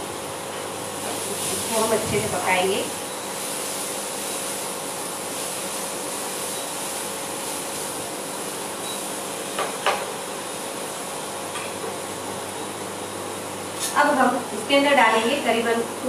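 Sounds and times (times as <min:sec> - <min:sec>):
food sizzling in butter: 0:01.0 - 0:11.5.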